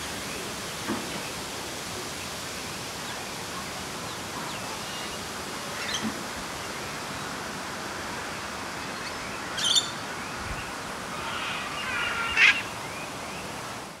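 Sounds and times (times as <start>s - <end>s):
steady outdoor hiss: 0.0s - 14.0s
birds calling: 8.8s - 13.5s.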